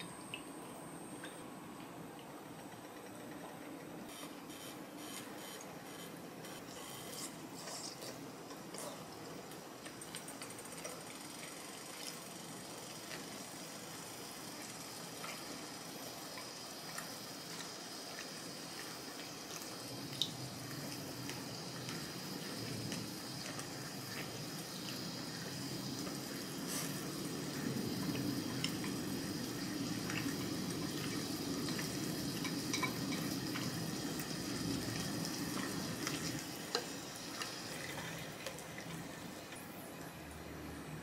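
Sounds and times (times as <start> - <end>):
steak sizzling on griddle: 11.2 - 38.4.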